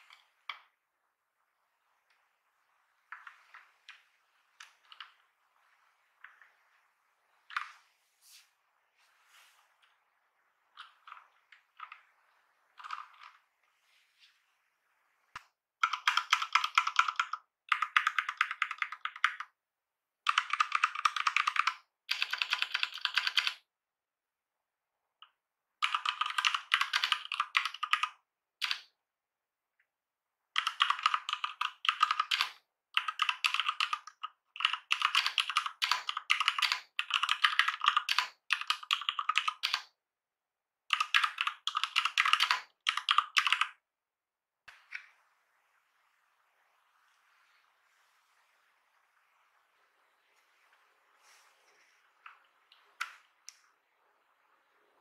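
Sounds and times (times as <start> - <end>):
mechanical keyboard typing: 4.6 - 5.2, 7.5 - 7.8, 10.7 - 12.1, 12.7 - 13.4, 15.8 - 19.6, 20.2 - 23.6, 25.8 - 28.9, 30.5 - 40.0, 40.9 - 43.8.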